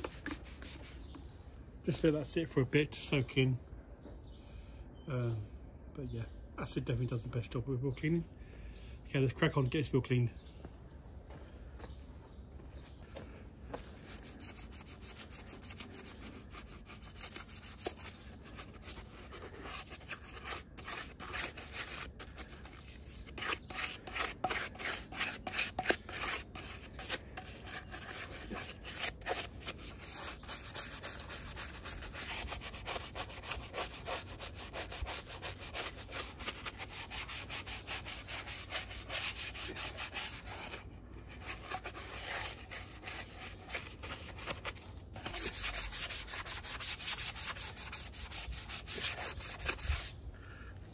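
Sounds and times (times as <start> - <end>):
stiff brush scrubbing a wheel: 14.1 - 50.7.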